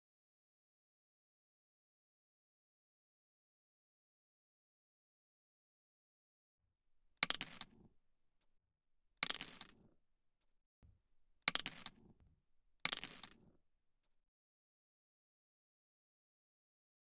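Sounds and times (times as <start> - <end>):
coins dropping and clinking: 7.2 - 7.9, 9.2 - 9.9, 11.4 - 12.1, 12.8 - 13.5.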